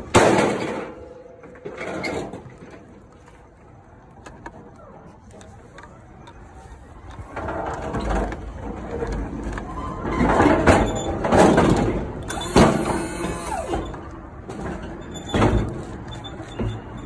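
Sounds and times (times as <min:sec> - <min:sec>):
crates clattering and rolling: 0:00.0 - 0:03.6, 0:07.0 - 0:17.0.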